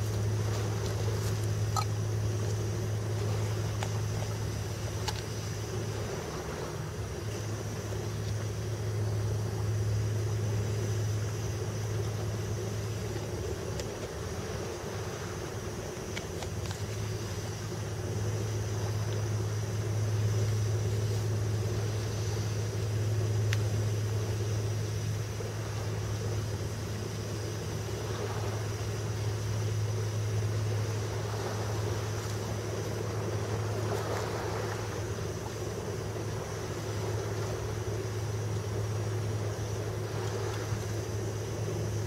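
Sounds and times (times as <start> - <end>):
low engine drone: 0.0 - 42.0.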